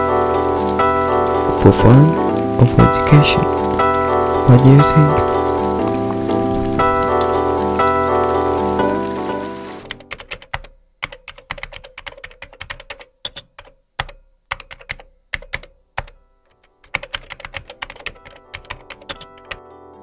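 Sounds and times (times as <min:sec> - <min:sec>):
keyboard typing: 0:09.8 - 0:19.6.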